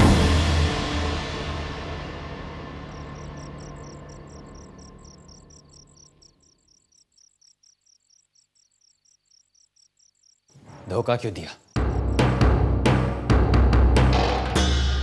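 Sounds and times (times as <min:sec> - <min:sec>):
dramatic background music: 0:00.0 - 0:05.0
cricket chirping: 0:02.4 - 0:12.5.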